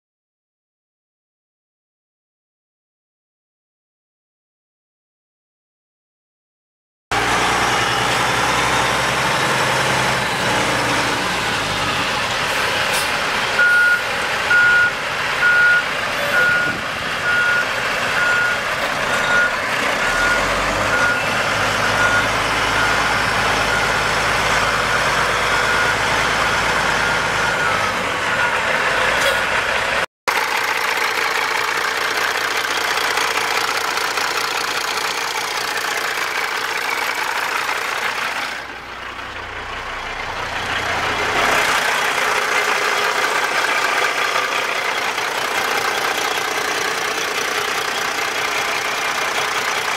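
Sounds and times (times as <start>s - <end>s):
diesel truck engine running: 7.1s - 49.9s
reverse warning beeper: 13.6s - 28.7s.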